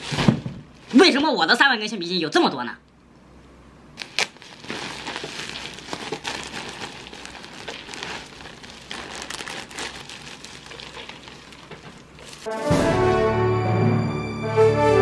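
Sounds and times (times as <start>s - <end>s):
rubber bands rustling out of sack: 0.0s - 1.2s, 4.0s - 12.5s
plastic sack rustling: 0.0s - 1.3s, 4.0s - 12.5s.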